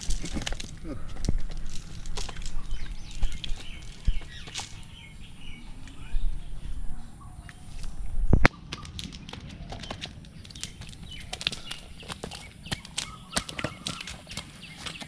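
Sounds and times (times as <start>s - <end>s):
fish slapping on ground: 8.5s - 15.0s.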